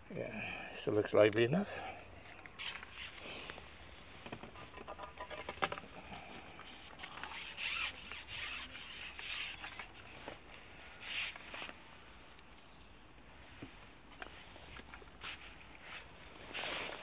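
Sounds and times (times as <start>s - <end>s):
scratchy swishes: 7.2s - 9.8s.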